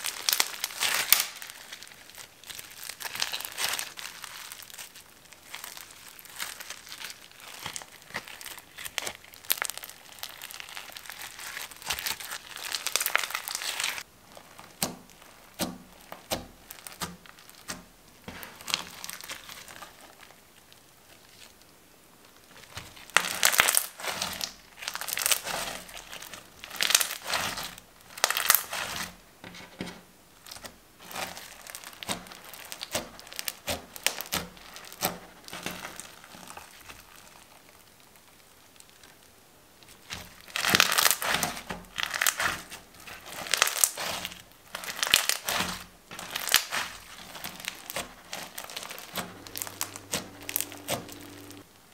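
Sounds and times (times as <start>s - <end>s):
slime crackling and popping: 0.0s - 29.2s, 30.4s - 51.6s.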